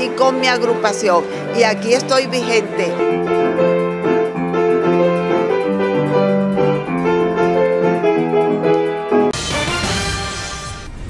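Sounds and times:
keyboard instrumental music: 0:00.0 - 0:10.8.

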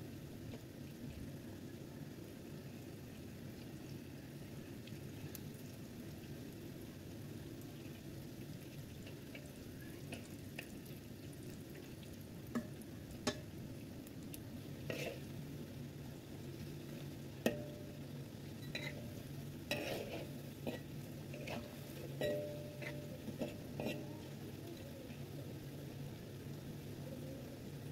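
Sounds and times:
food deep-frying in oil: 0:00.0 - 0:27.9
spatula clicking against pan: 0:12.5 - 0:13.5.

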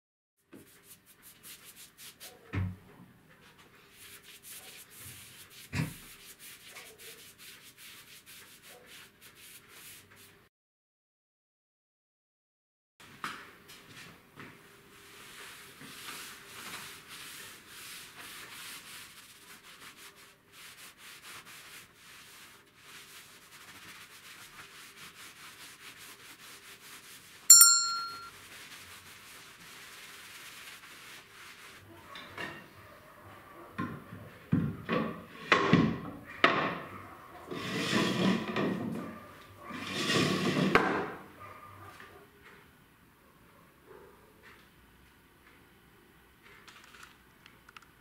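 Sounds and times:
cloth rubbing on wood: 0:00.6 - 0:02.5, 0:03.4 - 0:10.4, 0:14.9 - 0:32.0
ringing metallic ding: 0:27.5 - 0:28.3.

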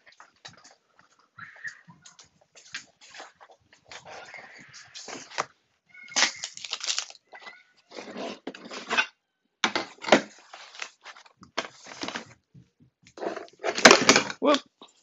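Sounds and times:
scraping and rustling: 0:01.9 - 0:05.5, 0:06.3 - 0:09.1, 0:09.8 - 0:12.4, 0:13.1 - 0:14.3.

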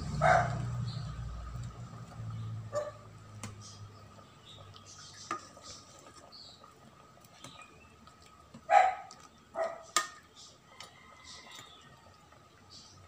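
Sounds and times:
ladle stirring curry in a pot: 0:00.7 - 0:13.0
ladle scraping and tapping pot: 0:05.0 - 0:06.3, 0:09.8 - 0:11.8.

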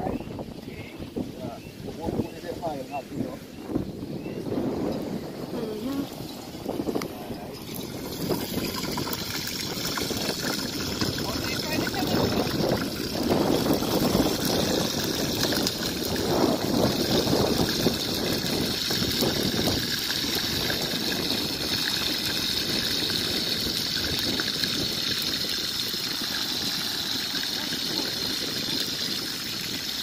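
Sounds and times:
frying hiss in oil: 0:07.0 - 0:30.0.

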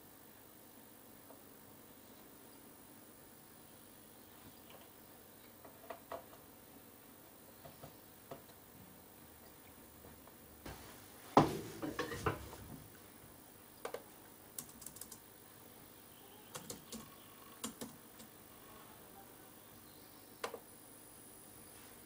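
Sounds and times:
loud knock: 0:11.4 - 0:12.5
laptop keyboard typing: 0:13.9 - 0:15.2, 0:16.5 - 0:18.4.

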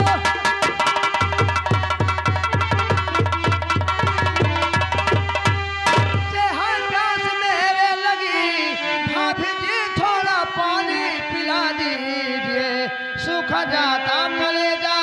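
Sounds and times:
held instrumental notes: 0:00.0 - 0:07.2.

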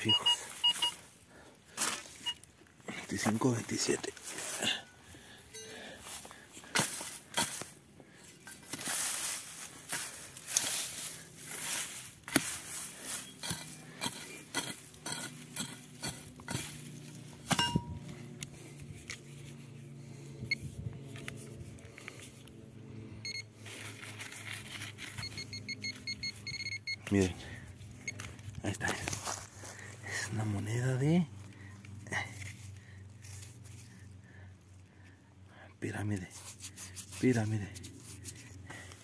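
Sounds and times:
metal detector beeping: 0:00.0 - 0:01.1, 0:02.2 - 0:02.5, 0:05.5 - 0:05.8, 0:13.1 - 0:14.2, 0:17.5 - 0:18.1, 0:23.2 - 0:23.6, 0:24.8 - 0:27.4, 0:28.0 - 0:28.4
metal tool scraping stony soil: 0:06.6 - 0:18.2, 0:36.0 - 0:38.6.

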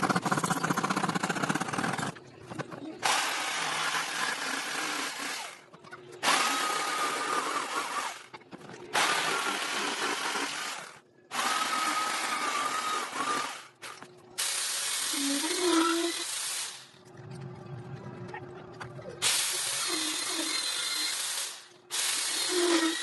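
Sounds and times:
jigsaw sawing through wood: 0:03.0 - 0:05.6, 0:06.2 - 0:08.2, 0:09.0 - 0:13.7, 0:19.8 - 0:23.0.

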